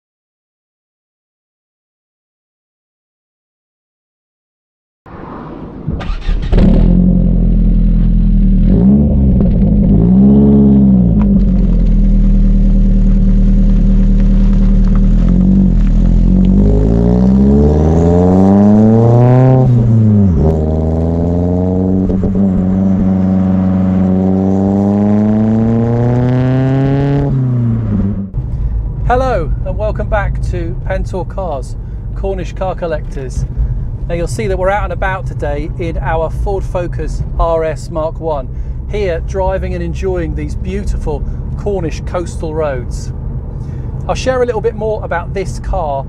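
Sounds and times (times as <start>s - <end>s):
car engine revving: 5.1s - 31.4s.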